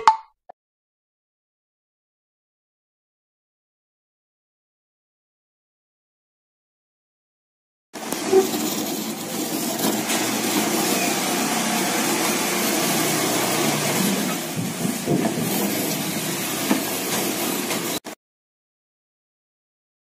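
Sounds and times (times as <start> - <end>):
coconut grater scraping grind: 8.0 - 18.0.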